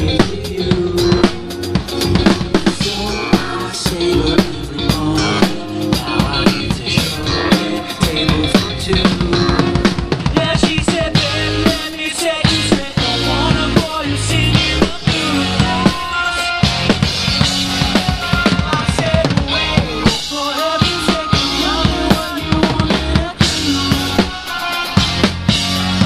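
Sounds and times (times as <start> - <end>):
live rock band playing: 0.0 - 26.0.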